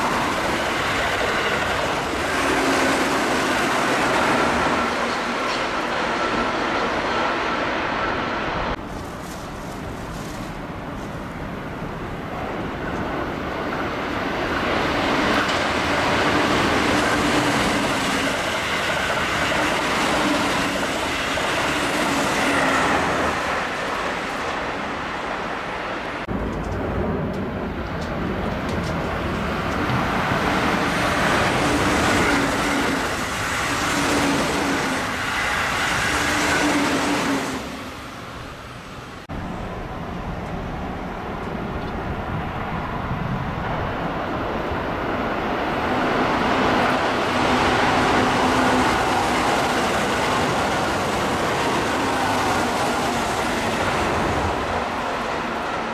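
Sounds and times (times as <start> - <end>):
train rushing past: 0.0 - 55.9.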